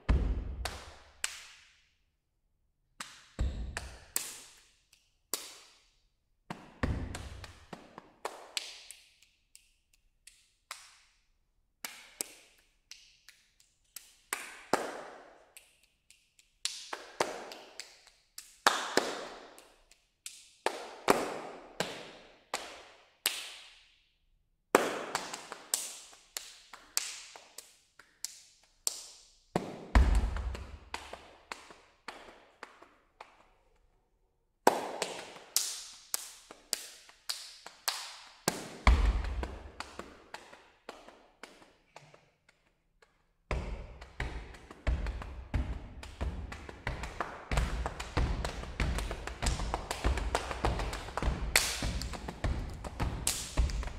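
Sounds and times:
hand claps and strikes: 0.0 - 1.9, 3.0 - 23.9, 24.7 - 33.8, 34.6 - 53.9.

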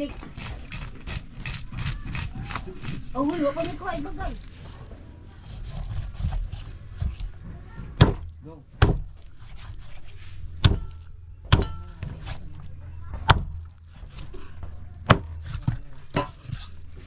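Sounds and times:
knife cutting: 0.1 - 4.6, 5.4 - 7.4, 8.8 - 12.7
knife chopping fish on wooden board: 8.0 - 9.9, 10.6 - 12.4.

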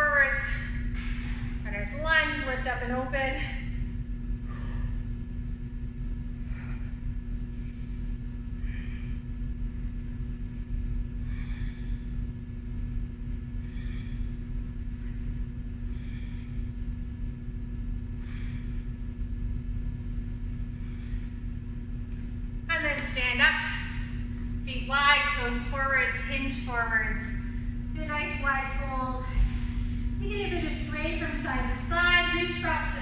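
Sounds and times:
low rumble and hum: 0.0 - 33.0
woman breathing faintly: 10.4 - 17.1.

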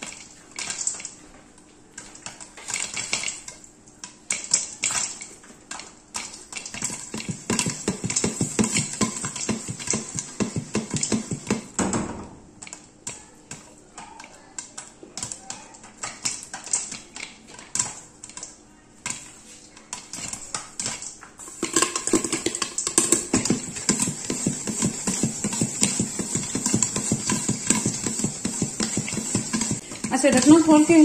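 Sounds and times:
popcorn popping: 0.0 - 31.0
kernels rattling in shaken pan: 4.3 - 11.8, 19.9 - 31.0.

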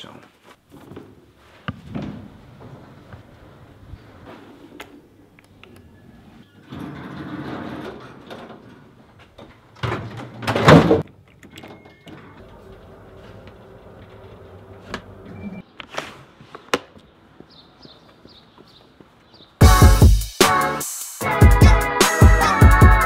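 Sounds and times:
elevator doors sliding: 5.8 - 10.8, 11.5 - 15.6
elevator car humming: 11.7 - 15.6.

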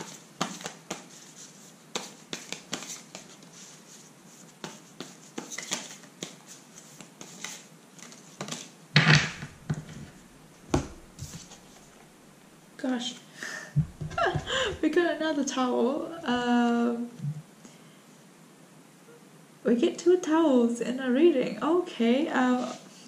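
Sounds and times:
cards being shuffled: 0.0 - 8.8, 9.4 - 12.0.

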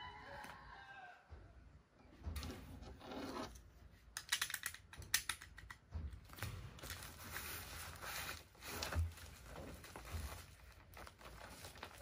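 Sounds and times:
sharp clicks and taps: 4.2 - 6.6
bubble wrap crinkling: 6.3 - 12.0.

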